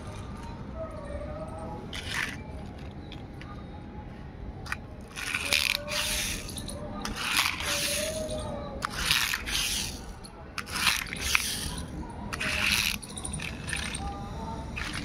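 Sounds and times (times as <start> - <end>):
toy car wheels scraping concrete: 1.9 - 3.2, 4.7 - 14.1, 14.8 - 15.0.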